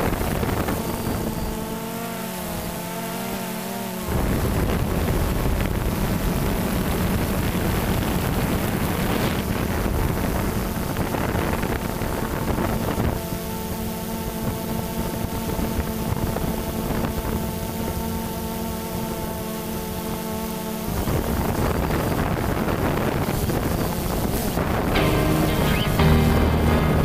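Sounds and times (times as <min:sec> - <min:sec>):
wind on microphone rumble: 0:00.0 - 0:01.7, 0:04.1 - 0:13.7, 0:14.3 - 0:18.2, 0:20.9 - 0:25.0
drone propellers whining: 0:25.0 - 0:27.0.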